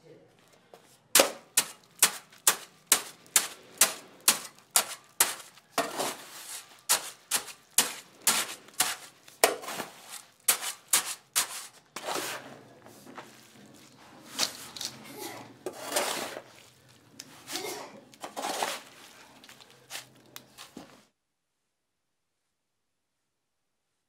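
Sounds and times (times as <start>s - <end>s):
shovel striking concrete floor: 1.1s - 12.5s, 15.6s - 16.6s, 17.4s - 19.1s
shovel scraping wet mix: 1.1s - 21.0s.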